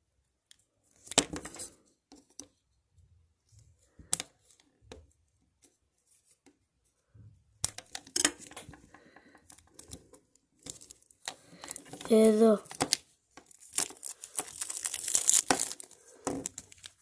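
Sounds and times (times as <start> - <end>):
wrapping crinkling: 10.6 - 17.0.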